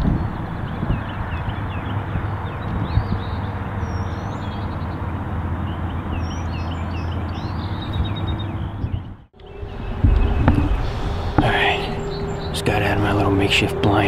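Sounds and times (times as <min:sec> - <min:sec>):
songbirds chirping and whistling: 0:00.0 - 0:14.0
low rumble: 0:09.2 - 0:14.0.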